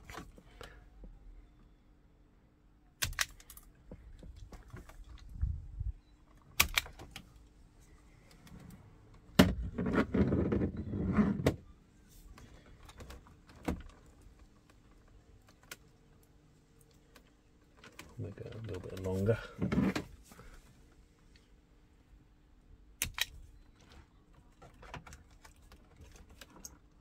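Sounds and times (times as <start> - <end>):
wiring rustling and scraping: 3.4 - 21.5, 23.7 - 27.0.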